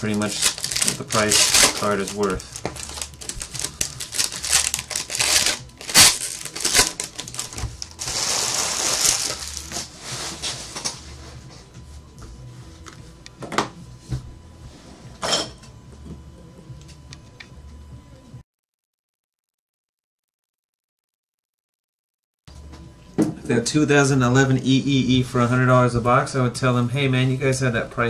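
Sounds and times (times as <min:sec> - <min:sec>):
foil pack tearing and crinkling: 0:00.0 - 0:10.9.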